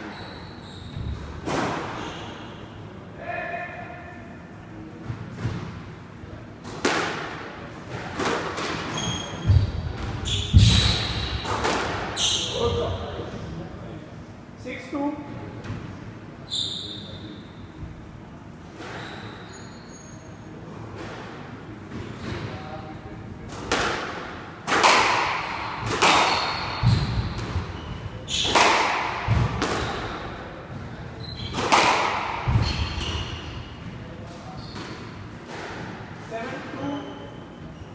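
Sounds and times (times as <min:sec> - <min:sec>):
squash ball hits: 0:01.0 - 0:02.0, 0:06.7 - 0:12.2, 0:23.5 - 0:36.1.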